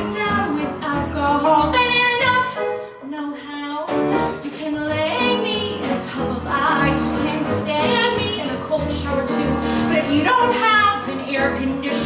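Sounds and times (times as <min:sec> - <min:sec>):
drums: 0:00.0 - 0:02.7, 0:03.8 - 0:12.0
bass: 0:00.0 - 0:12.0
piano: 0:00.0 - 0:12.0
woman singing: 0:00.0 - 0:12.0
guitar: 0:03.8 - 0:12.0.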